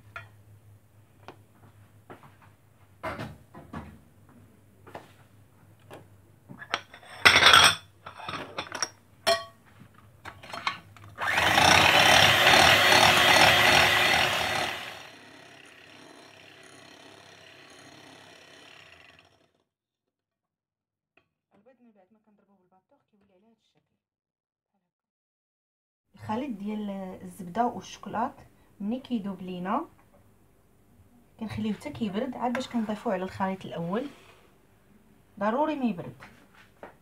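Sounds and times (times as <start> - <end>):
electric hand mixer running: 11.2 - 19.6.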